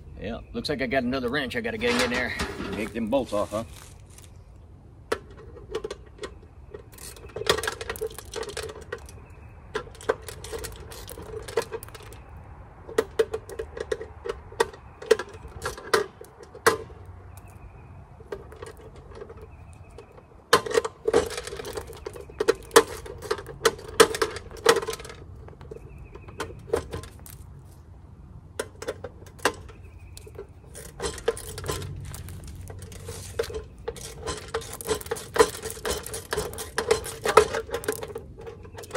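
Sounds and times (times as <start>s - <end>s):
wrench clicking on metal bolts: 28.6s - 38.9s.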